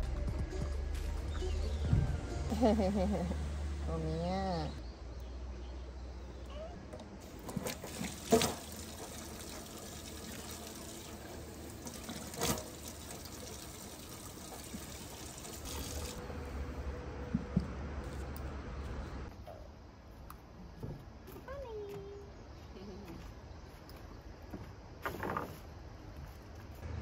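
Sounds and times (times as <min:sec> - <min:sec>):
faucet water running into sink: 0:07.2 - 0:16.2.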